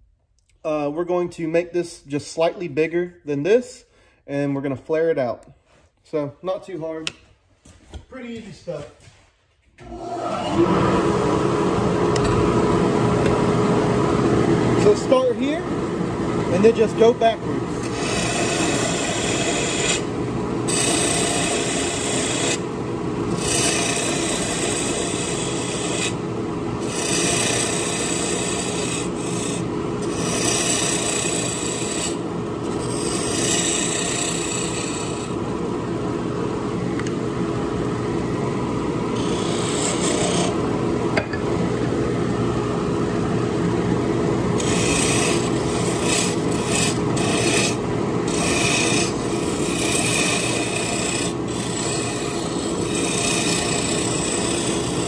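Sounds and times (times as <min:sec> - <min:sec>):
wood lathe humming: 0:09.8 - 0:55.0
turning tool cutting wood: 0:11.8 - 0:55.0.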